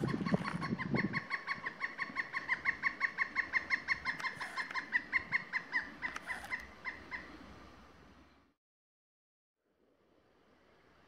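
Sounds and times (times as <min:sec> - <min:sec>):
woodpecker calling: 0:00.0 - 0:07.4.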